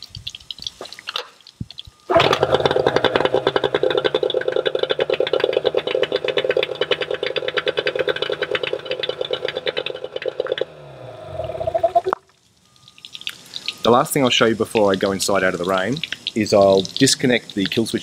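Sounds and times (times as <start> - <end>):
outboard motor running: 2.1 - 12.1
motor winding down: 2.1 - 12.2.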